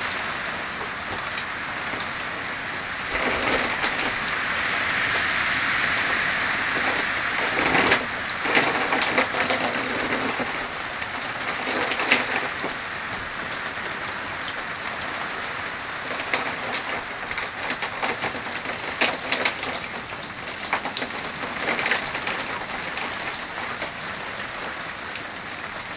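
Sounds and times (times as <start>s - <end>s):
steady rain on foliage: 0.0s - 25.9s.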